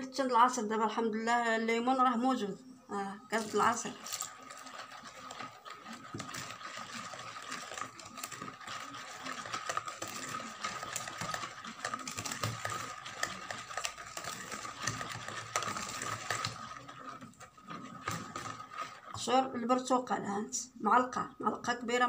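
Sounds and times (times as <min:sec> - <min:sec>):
wire whisk clattering in bowl: 0:03.4 - 0:19.2.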